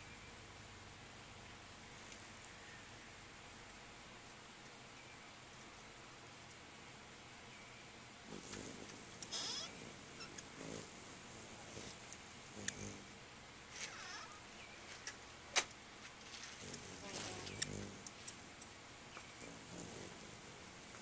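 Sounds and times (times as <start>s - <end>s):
hummingbirds chattering: 0.0s - 21.0s
high regular ticking: 6.3s - 15.7s, 16.7s - 21.0s.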